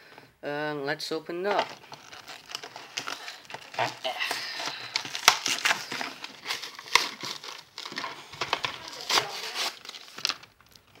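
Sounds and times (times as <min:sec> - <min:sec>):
plastic packaging crinkling: 0:01.4 - 0:11.0
plastic snapping: 0:04.7 - 0:11.0.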